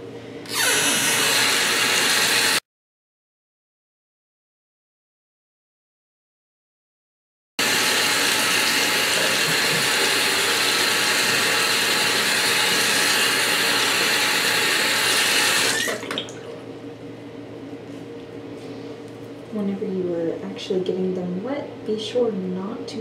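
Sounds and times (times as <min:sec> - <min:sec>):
faucet running water: 0:00.5 - 0:02.6, 0:07.6 - 0:16.6.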